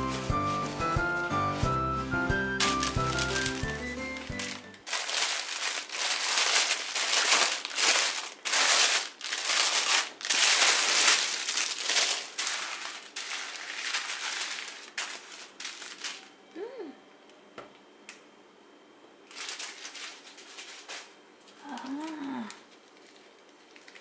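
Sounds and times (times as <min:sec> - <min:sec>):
small plastic bags rustling: 0:02.5 - 0:16.3, 0:19.3 - 0:24.0
plastic bag crinkling: 0:02.6 - 0:16.3, 0:19.3 - 0:24.0.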